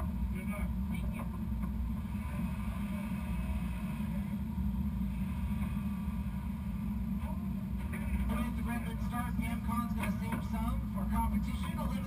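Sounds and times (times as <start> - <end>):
low engine rumble: 0.0 - 12.0.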